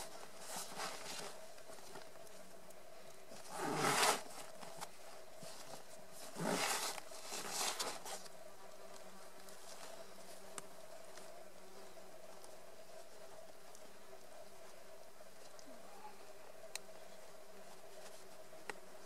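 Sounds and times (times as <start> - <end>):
backpack fabric rustling: 0.0 - 2.1, 3.3 - 8.3
small tick: 16.7 - 16.9.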